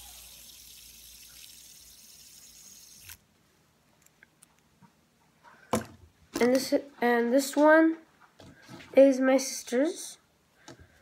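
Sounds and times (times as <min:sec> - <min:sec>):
fidget spinner whirring: 0:00.0 - 0:03.2.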